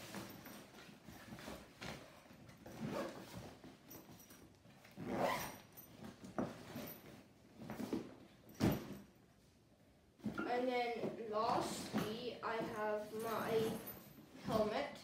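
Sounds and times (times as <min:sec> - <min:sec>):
zip being pulled: 0:02.8 - 0:03.3, 0:05.0 - 0:05.7.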